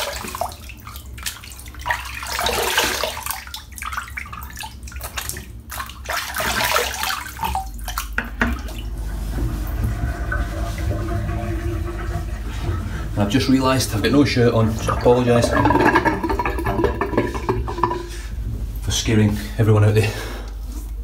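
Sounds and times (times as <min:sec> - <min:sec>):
water splashing on face: 0:00.0 - 0:08.9
tap water running into sink: 0:06.5 - 0:18.2.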